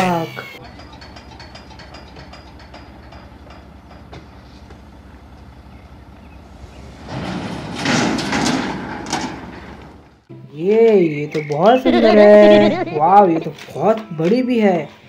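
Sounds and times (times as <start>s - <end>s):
car driving down metal ramps: 0.6s - 10.3s
vehicle engine idling: 2.8s - 7.6s.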